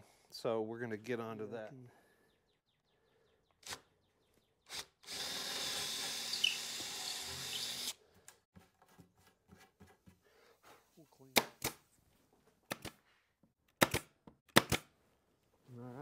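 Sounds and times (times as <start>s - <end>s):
power drill drilling into wood: 4.7s - 8.0s.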